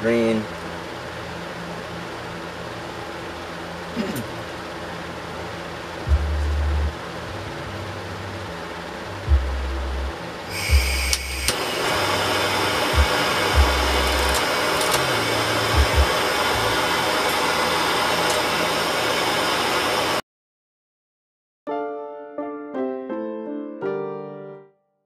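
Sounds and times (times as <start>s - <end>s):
torch flame hissing: 10.4s - 20.2s
gas torch igniter clicks: 10.5s - 11.6s, 13.0s - 16.2s, 18.2s - 18.5s.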